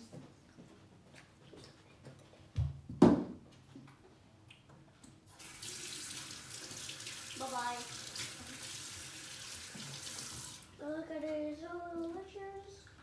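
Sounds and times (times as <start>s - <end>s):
tap water running into sink: 5.3s - 10.7s.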